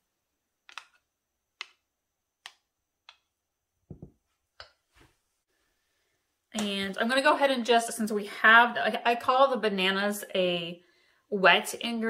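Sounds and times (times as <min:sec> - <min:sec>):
dull knock: 0:03.9 - 0:04.2.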